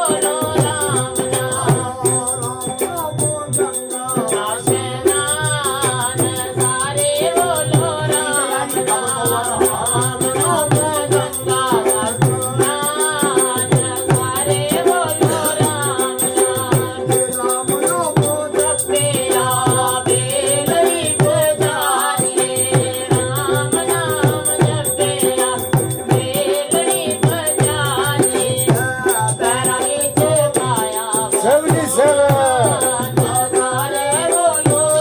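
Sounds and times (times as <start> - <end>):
hand drum beat: 0.0 - 35.0
man singing folk melody: 31.3 - 33.4.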